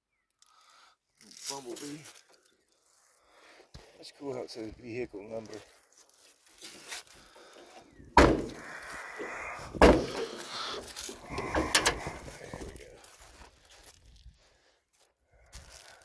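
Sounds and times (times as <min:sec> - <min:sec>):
steel car door banging shut: 0:08.2 - 0:08.7, 0:09.8 - 0:12.6
metal scraping and rattling: 0:09.7 - 0:12.8.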